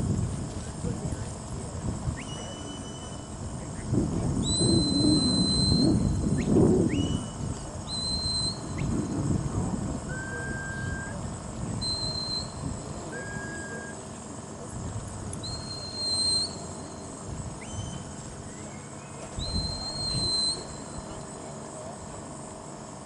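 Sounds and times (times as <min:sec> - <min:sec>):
wind rumble on microphone: 0:00.0 - 0:13.6, 0:14.5 - 0:16.1, 0:17.2 - 0:18.5, 0:19.2 - 0:21.3
herding whistle notes: 0:02.2 - 0:03.4, 0:04.4 - 0:09.1, 0:10.1 - 0:11.2, 0:11.8 - 0:14.1, 0:15.4 - 0:21.2.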